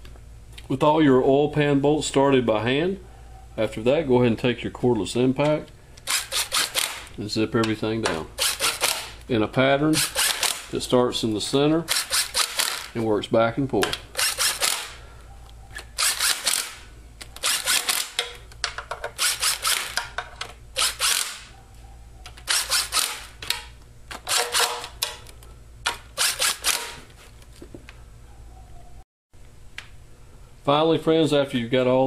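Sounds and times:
cordless impact driver bursts: 6.0s - 7.1s, 8.4s - 9.2s, 10.0s - 10.7s, 11.9s - 12.9s, 14.1s - 15.0s, 16.0s - 16.8s, 17.4s - 18.2s, 19.2s - 20.0s, 20.8s - 21.5s, 22.4s - 23.4s, 25.9s - 27.0s.

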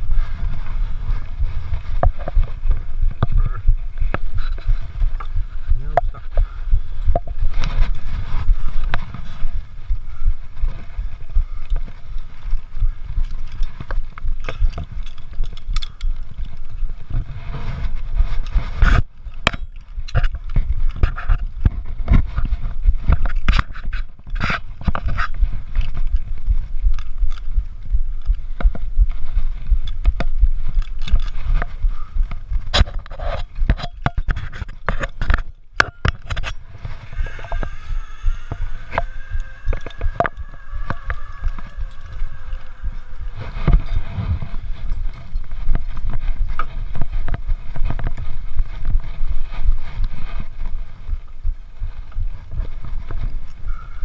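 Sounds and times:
clothing rubbing against camera: 0.0s - 15.5s, 16.4s - 19.1s
low rumble: 0.0s - 54.0s.

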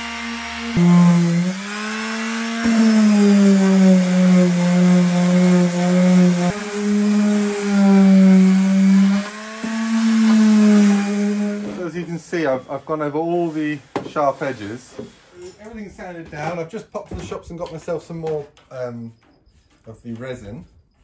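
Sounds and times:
electric palm sander on wood: 0.0s - 13.4s.

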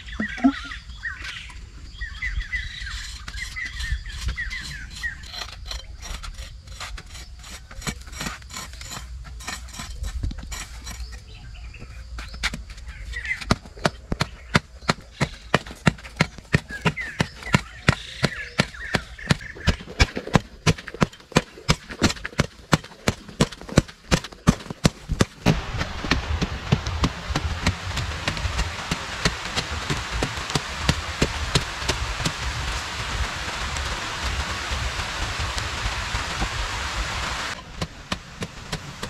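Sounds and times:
digging tool chopping hard soil: 13.4s - 36.5s, 37.5s - 39.0s
steady rushing hiss: 24.3s - 39.0s.

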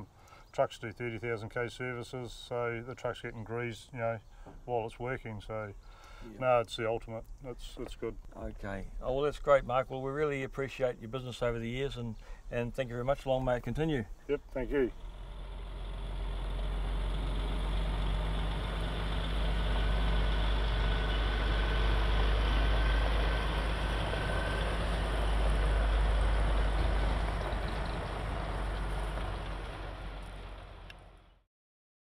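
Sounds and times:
truck diesel engine rumbling: 14.3s - 31.4s.

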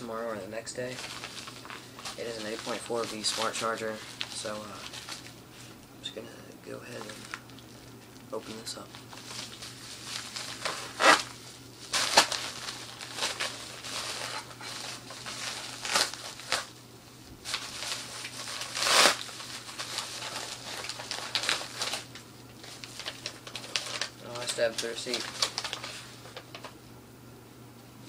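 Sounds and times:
package wrapping tearing and crinkling: 0.9s - 5.3s, 8.8s - 16.7s, 17.4s - 26.7s.

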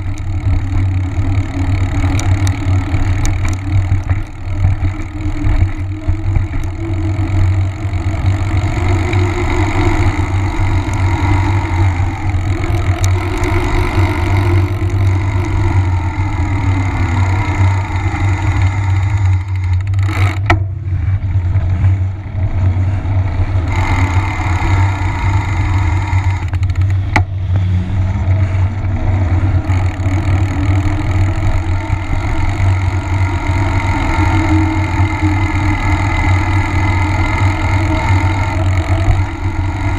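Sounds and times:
bike tyre humming on asphalt: 0.0s - 39.9s
wind rumble on microphone: 0.0s - 39.9s.

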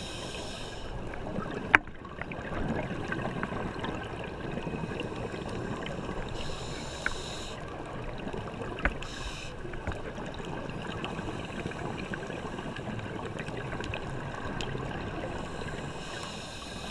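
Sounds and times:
underwater watery rumble: 0.0s - 16.9s
small clicks and crackles: 1.1s - 11.2s, 13.1s - 15.0s.

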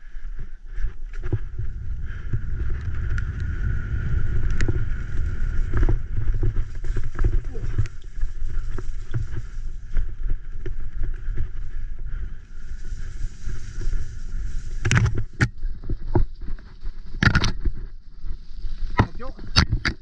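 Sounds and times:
bicycle rattling on muddy trail: 0.0s - 20.0s
bike knocking over bumps: 5.6s - 7.9s.

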